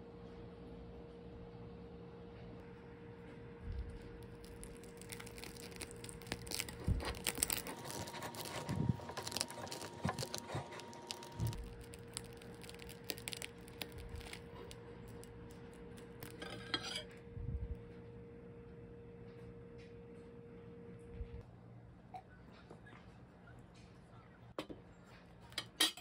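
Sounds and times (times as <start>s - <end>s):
knife and fork cutting crunchy crust: 3.7s - 17.1s
cutlery scraping ceramic plate: 16.3s - 17.1s.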